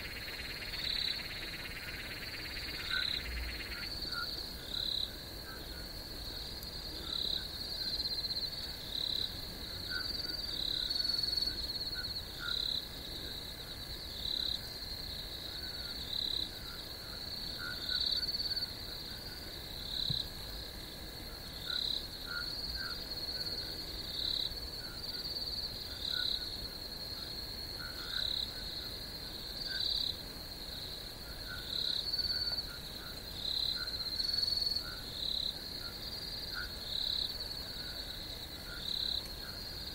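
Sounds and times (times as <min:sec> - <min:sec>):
frog calls: 0:00.0 - 0:05.9, 0:09.0 - 0:13.3, 0:15.5 - 0:19.3, 0:27.2 - 0:29.0
cricket trill: 0:00.0 - 0:39.9.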